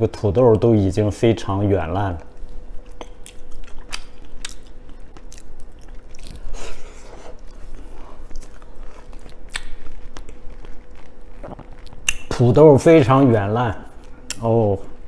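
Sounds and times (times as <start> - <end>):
person chewing food: 2.4 - 12.3
wet mouth clicks: 9.4 - 10.4, 11.4 - 12.3.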